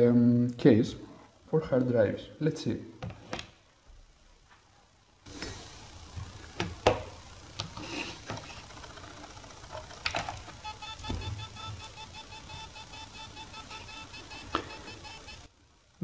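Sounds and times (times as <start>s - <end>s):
hard drive clicks and knocks: 6.1s - 15.3s.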